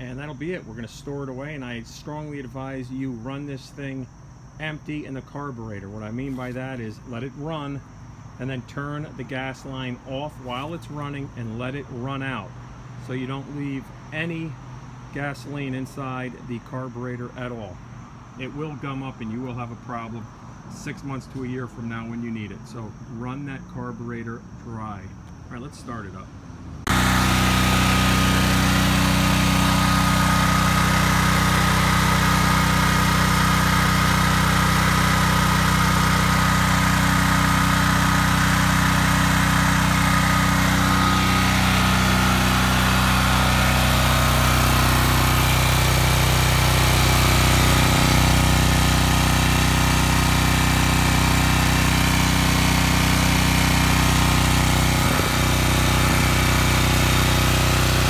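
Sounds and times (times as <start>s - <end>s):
generator engine running: 26.7s - 58.0s.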